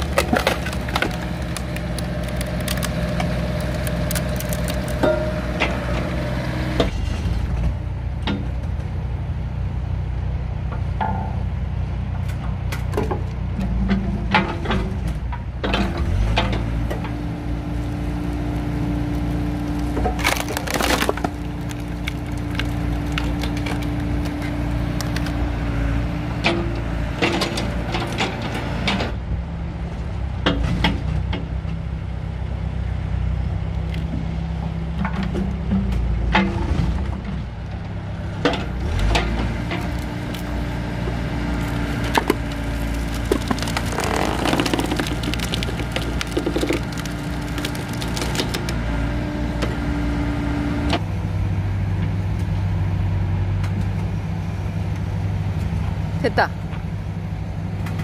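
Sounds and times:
wood cracking and splintering: 0.0s - 6.8s, 15.8s - 25.9s, 38.6s - 49.8s
diesel engine running: 0.0s - 58.0s.

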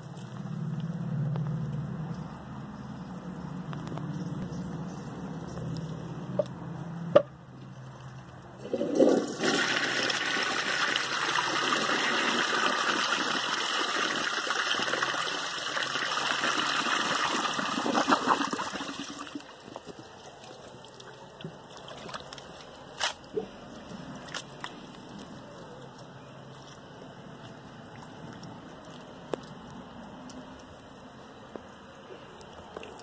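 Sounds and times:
toilet flushing: 8.6s - 19.6s.

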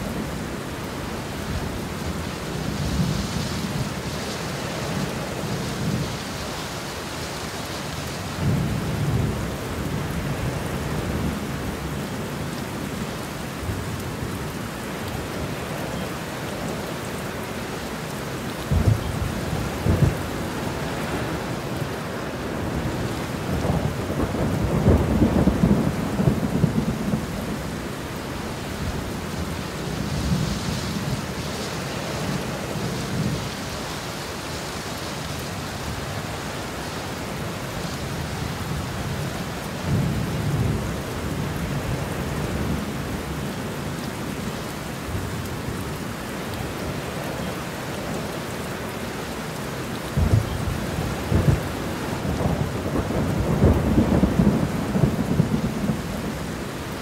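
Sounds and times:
heavy rain falling: 0.0s - 57.0s
thunder rumbling: 22.7s - 27.8s, 50.1s - 56.4s.

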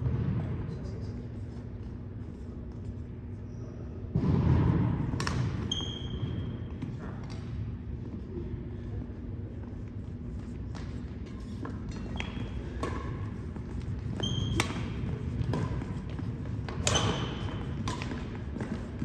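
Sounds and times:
rackets striking shuttlecock: 5.1s - 6.2s, 10.7s - 19.0s.

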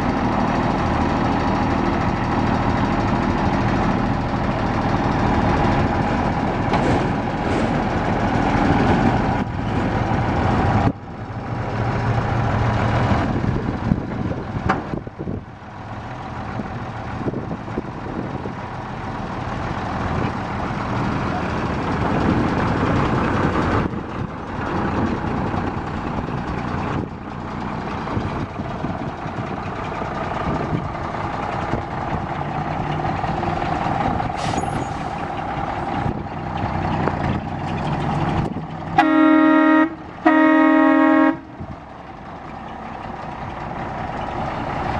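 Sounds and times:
diesel truck engine running: 0.0s - 44.9s
truck horn blasts: 39.0s - 41.6s.

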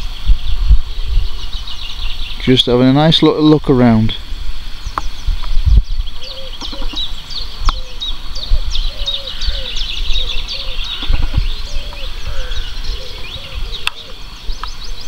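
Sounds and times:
birds chirping and trilling: 0.0s - 15.0s
low arched bird call: 4.2s - 15.0s.

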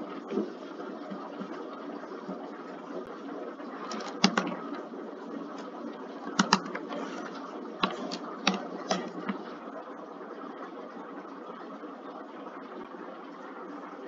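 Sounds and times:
steady background noise: 0.0s - 14.0s
keyboard and mouse clicks: 3.9s - 4.6s, 6.4s - 9.4s.

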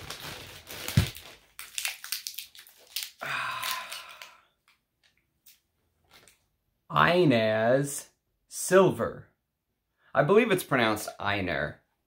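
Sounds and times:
packaging crinkling: 0.0s - 6.4s.

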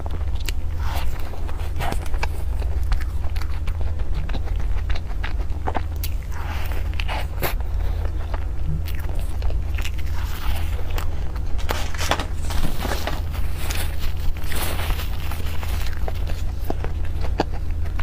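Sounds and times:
chewing cream puff: 0.0s - 18.0s
low hum: 0.0s - 18.0s
plastic gloves rustling: 10.0s - 17.0s.

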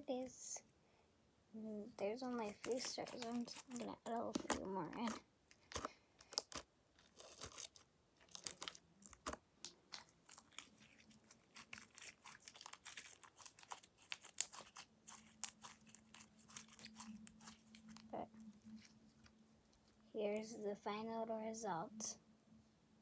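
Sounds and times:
slime squeezed with clicks and crackles: 2.3s - 19.4s.

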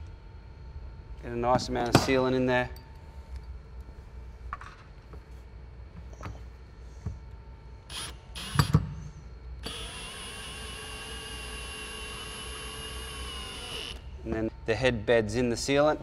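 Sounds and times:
power drill whining: 7.9s - 8.7s, 9.6s - 14.1s.

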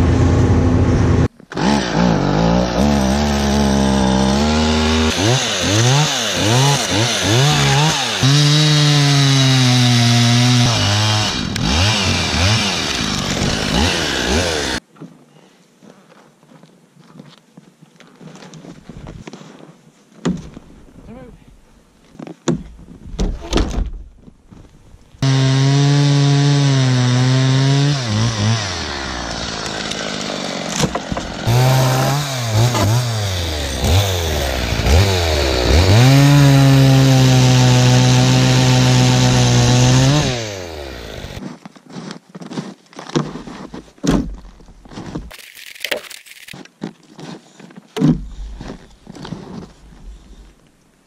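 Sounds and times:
chainsaw cutting a log: 0.1s - 14.8s, 25.2s - 41.4s.

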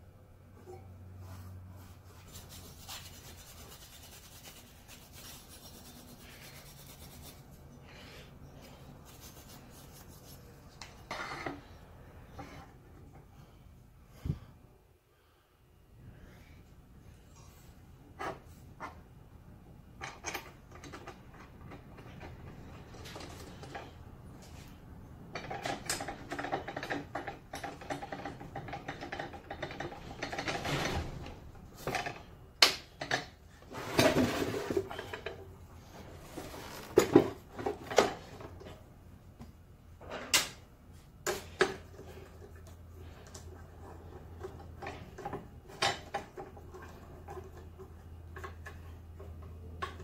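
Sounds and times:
metal rattling and scraping: 25.4s - 32.3s.

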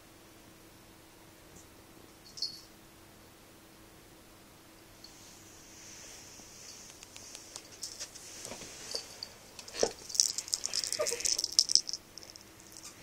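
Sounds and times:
light clicks and rustling: 6.8s - 13.0s
crinkly toy rattle: 8.9s - 13.0s.

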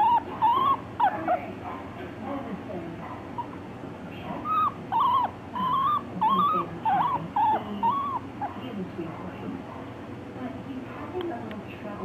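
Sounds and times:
guinea pig squealing: 0.0s - 1.6s, 4.4s - 8.6s.

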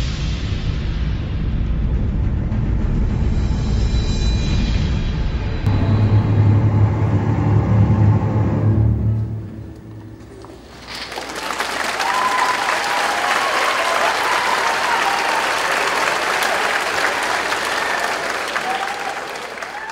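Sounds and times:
audience applause: 9.8s - 19.9s.

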